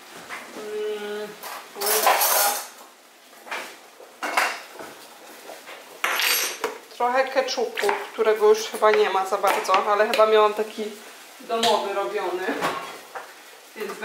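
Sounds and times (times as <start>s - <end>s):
dishes and cutlery clattering: 1.4s - 2.8s, 6.0s - 6.8s.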